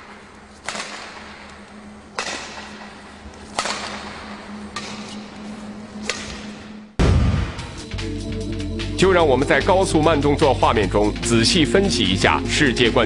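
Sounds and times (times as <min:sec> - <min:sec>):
racket hitting shuttlecock: 0:00.0 - 0:06.9.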